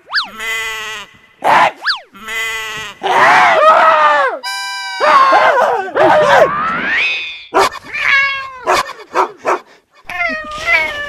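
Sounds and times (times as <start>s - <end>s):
meow-like wailing cries: 7.7s - 8.8s, 10.1s - 11.0s.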